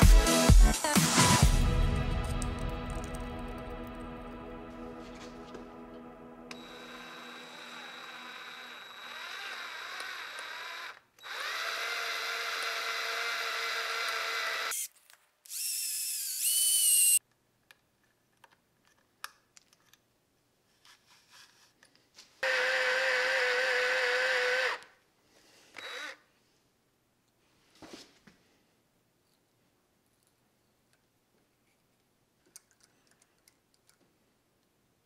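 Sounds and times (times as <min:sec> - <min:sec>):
electric drill drilling into metal: 0:06.5 - 0:14.9, 0:15.5 - 0:17.2, 0:22.4 - 0:24.9, 0:25.8 - 0:26.2.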